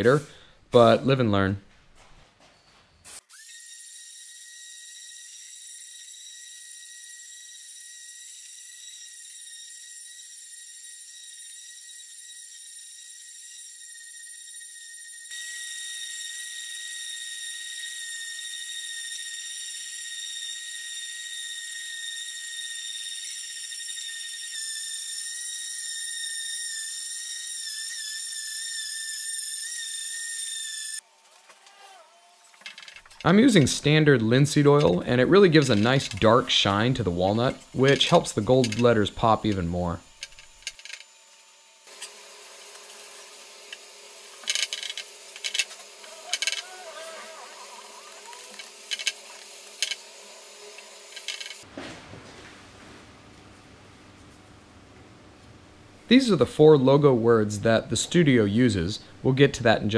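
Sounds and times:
orbital sander whining: 0:33.2 - 0:51.7.

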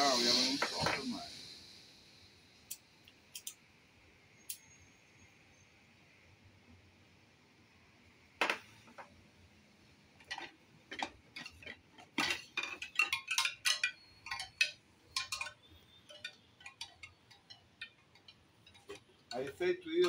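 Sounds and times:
bamboo wind chime tubes clacking: 0:10.2 - 0:20.0.

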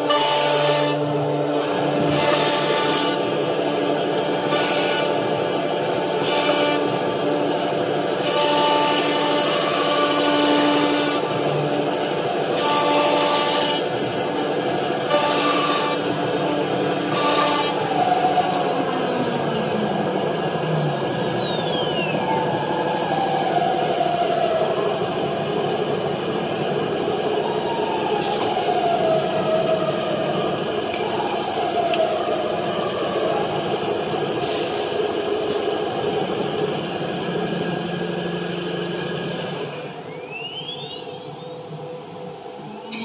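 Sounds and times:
machine hum: 0:00.0 - 0:43.0
wavering machine whines: 0:00.0 - 0:43.0
spindle whine rising in pitch: 0:02.7 - 0:34.4.

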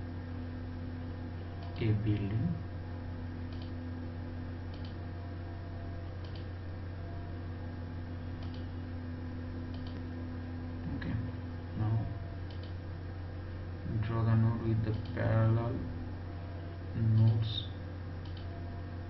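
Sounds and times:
electrical hum: 0:00.0 - 0:19.0
computer mouse clicking: 0:03.5 - 0:03.8, 0:04.7 - 0:05.0, 0:06.2 - 0:06.5, 0:08.4 - 0:08.7, 0:09.7 - 0:10.1, 0:12.4 - 0:12.8, 0:14.9 - 0:15.2, 0:17.1 - 0:17.4, 0:18.2 - 0:18.5.

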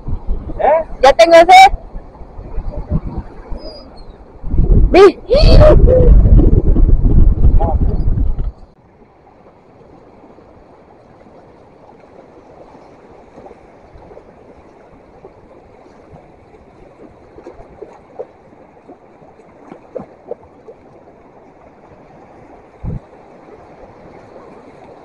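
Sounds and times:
moving water: 0:00.0 - 0:25.0
knocks and splashes: 0:11.2 - 0:25.0.

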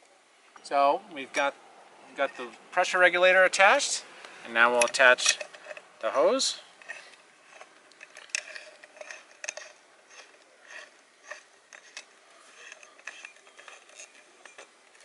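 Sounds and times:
metal coupling clicking and scraping: 0:01.1 - 0:15.0.

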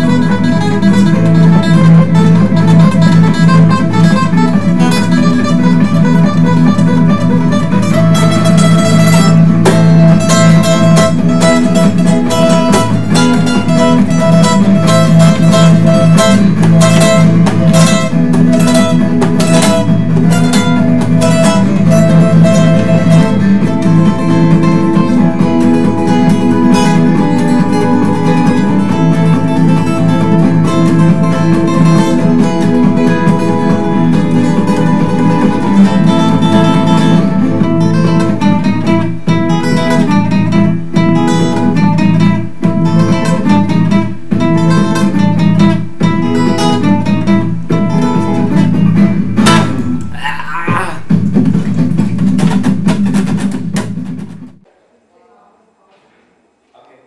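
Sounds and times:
acoustic guitar strumming: 0:00.0 - 0:54.7.

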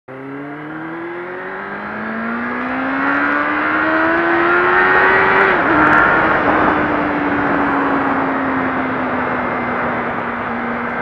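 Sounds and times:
motorcycle engine accelerating: 0:00.1 - 0:11.0
wind noise: 0:03.4 - 0:11.0.

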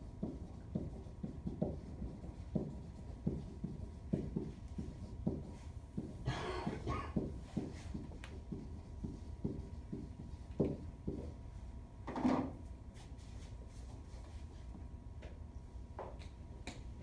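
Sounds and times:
marker knocking on whiteboard: 0:00.1 - 0:11.4.

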